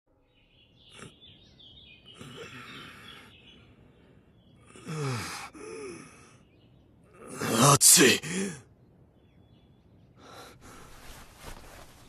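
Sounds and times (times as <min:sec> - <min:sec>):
birds chirping: 0:00.1 - 0:12.0
man groaning: 0:07.2 - 0:08.6.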